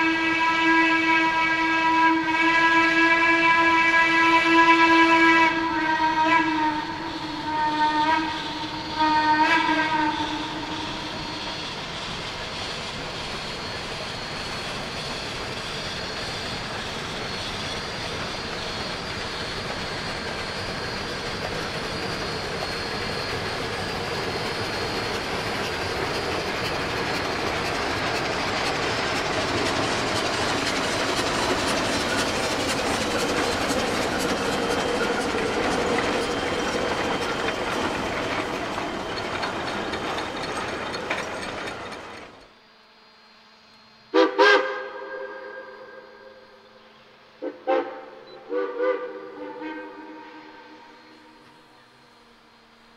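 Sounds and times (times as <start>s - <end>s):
steam locomotives passing: 0.0s - 52.9s
wheels clicking over rails: 17.6s - 42.5s.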